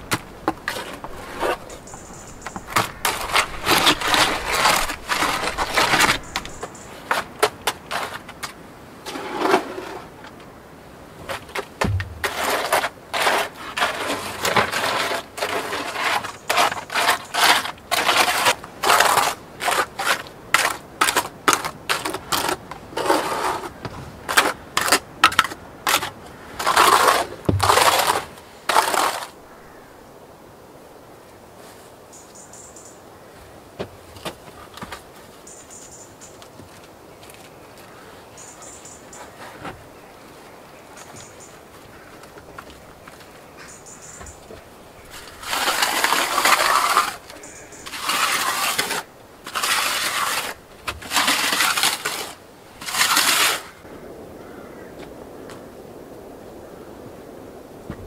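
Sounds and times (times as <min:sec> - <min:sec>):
spatula scraping wet cement: 0:00.0 - 0:10.2, 0:11.2 - 0:29.4, 0:43.7 - 0:53.8
dull knocks: 0:11.8 - 0:12.3.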